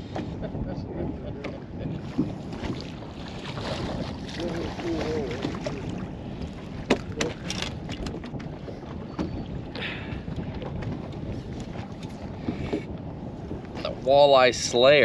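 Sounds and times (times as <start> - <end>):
water lapping at boat hull: 0.0 - 15.0
wind on microphone: 0.0 - 15.0
fish knocking and splashing: 6.8 - 8.5.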